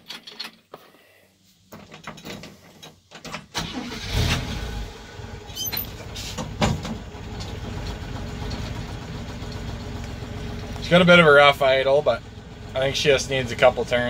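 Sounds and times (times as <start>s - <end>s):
engine cranking on starter: 3.5s - 10.6s
engine rough idle: 4.9s - 14.0s.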